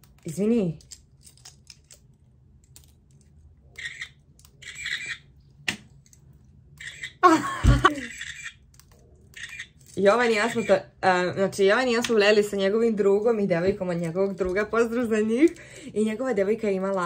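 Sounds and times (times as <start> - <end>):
electronic camera shutter sound: 3.8 - 5.2
person laughing: 7.2 - 8.2.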